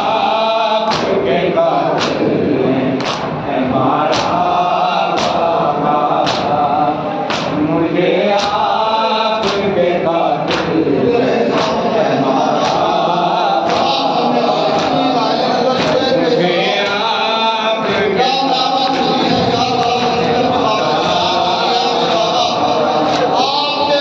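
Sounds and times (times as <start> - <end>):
men chanting over microphone: 0.0 - 24.0
chest-beating slaps in unison: 0.8 - 2.4, 3.0 - 8.8, 9.4 - 9.8, 10.4 - 10.9, 11.5 - 12.0, 12.6 - 16.2, 16.8 - 17.1, 18.8 - 21.4, 22.0 - 23.5.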